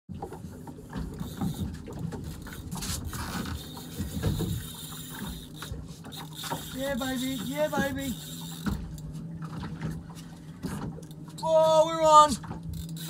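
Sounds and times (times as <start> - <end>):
thumps and knocks on boat: 0.1 - 6.6, 8.6 - 11.0.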